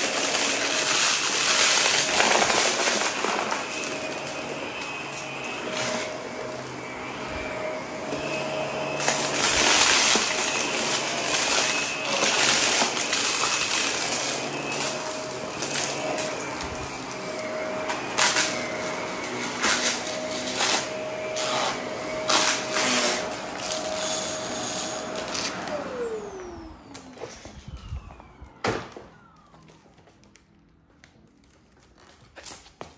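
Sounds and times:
vacuum cleaner motor whine: 0.0s - 31.3s.

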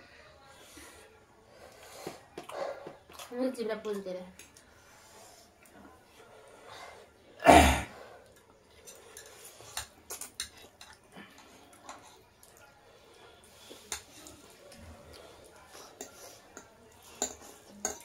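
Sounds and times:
forks scraping on plates: 8.8s - 11.0s.

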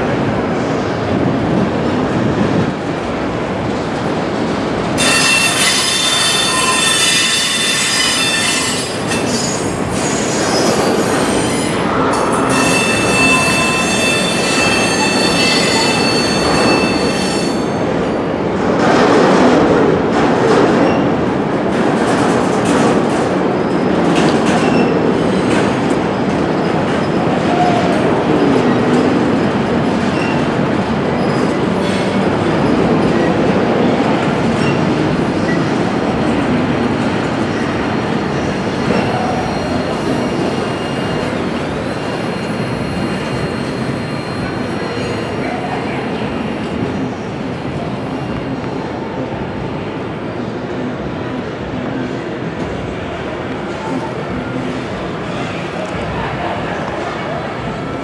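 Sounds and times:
freight train cars rolling: 0.0s - 58.0s
wheel squeal: 5.0s - 11.8s, 12.5s - 17.6s.

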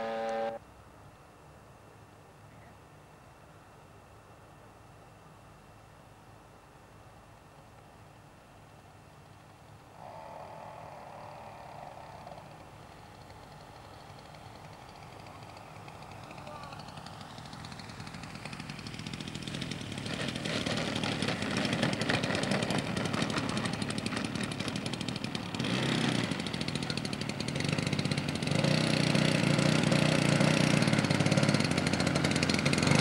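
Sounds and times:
model plane engine buzzing: 0.0s - 0.6s, 10.0s - 33.0s.

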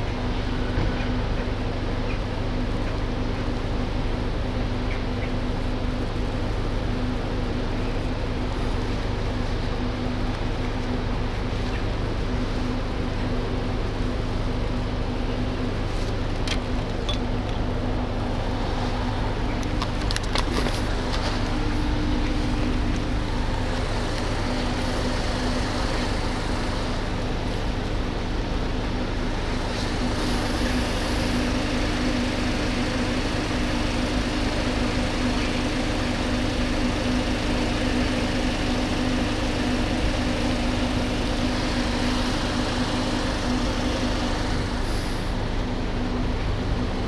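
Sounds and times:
vehicle engines idling: 0.0s - 47.0s.

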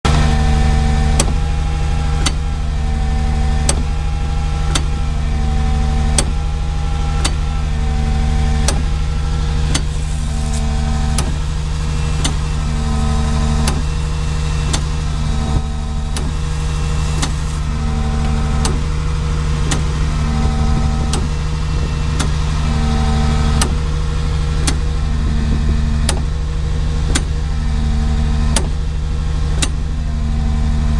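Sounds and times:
low engine drone: 0.0s - 30.9s.

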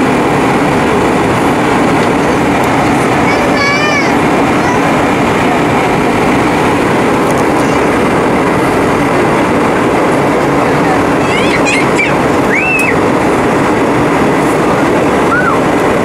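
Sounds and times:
airflow over fuselage: 0.0s - 16.0s
jet engine roar in cabin: 0.0s - 16.0s.

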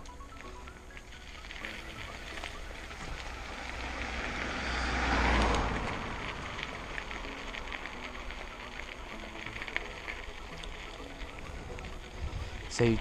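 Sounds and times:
bike tyres on gravel: 0.0s - 13.0s
wind rushing over microphone: 11.3s - 13.0s.

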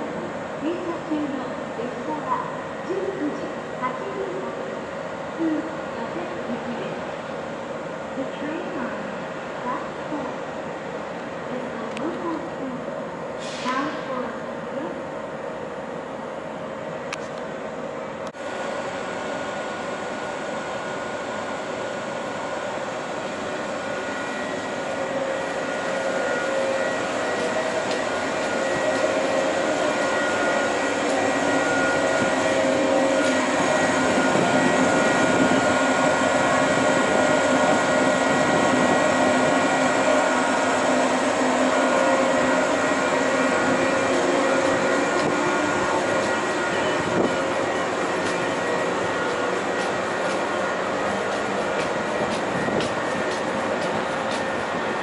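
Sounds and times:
electric train motor and wheels: 0.0s - 55.0s
train whining tones: 17.8s - 55.0s.

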